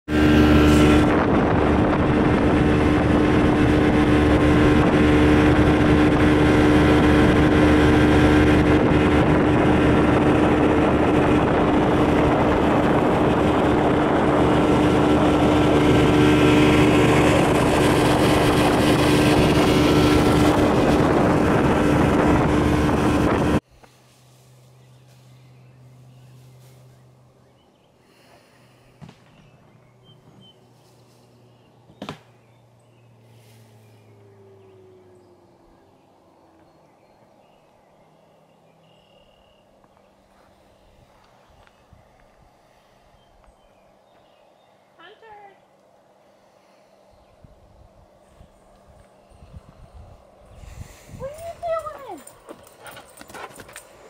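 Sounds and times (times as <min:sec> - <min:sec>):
outboard motor running: 0:00.1 - 0:23.6, 0:24.8 - 0:43.0.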